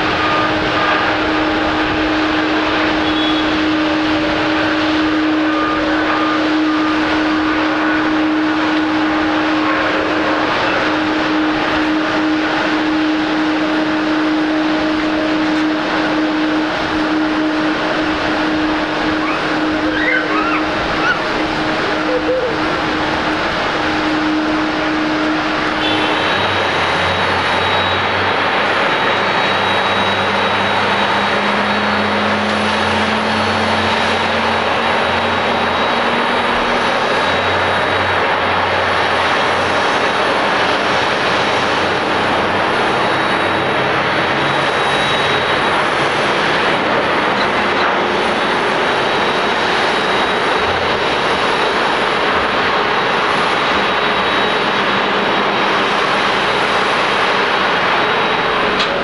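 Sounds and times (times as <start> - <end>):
jet climbing after takeoff: 0.0 - 59.0
jet engine roar with high whine: 0.0 - 59.0.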